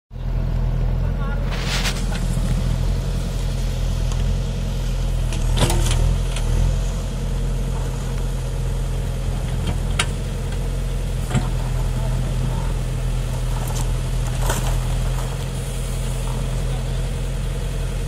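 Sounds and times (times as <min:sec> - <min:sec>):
diesel engine running: 0:00.1 - 0:18.0
sharp knocks of backhoe digging: 0:05.2 - 0:06.6.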